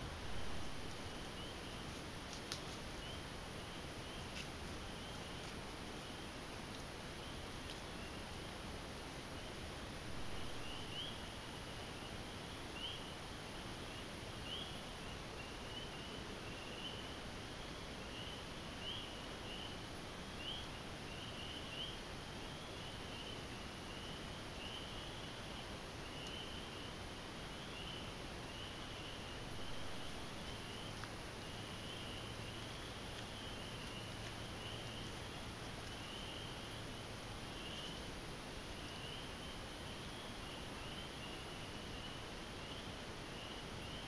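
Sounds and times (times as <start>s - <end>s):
faint background hiss: 0.0s - 44.0s
frogs peeping: 0.0s - 44.0s.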